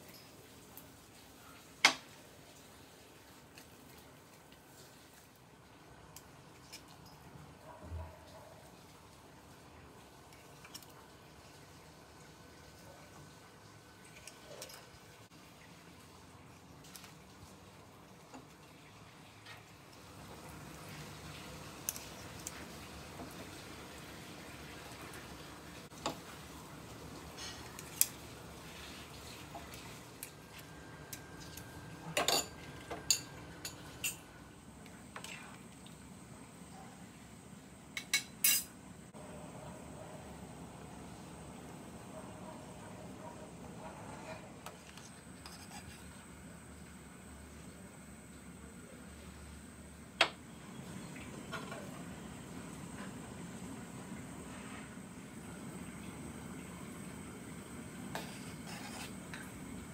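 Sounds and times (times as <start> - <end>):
soup simmering on gas stove: 8.6 - 38.4, 43.6 - 59.9
metal spoon clinking on bowl and pot: 32.2 - 34.2, 38.0 - 38.7.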